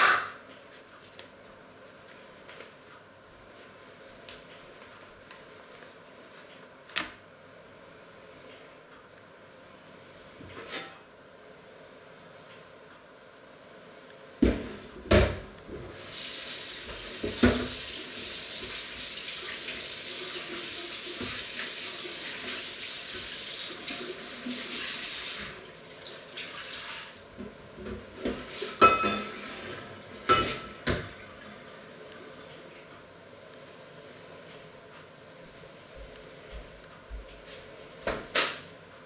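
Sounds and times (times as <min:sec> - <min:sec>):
dishes clattering: 0:28.3 - 0:31.1.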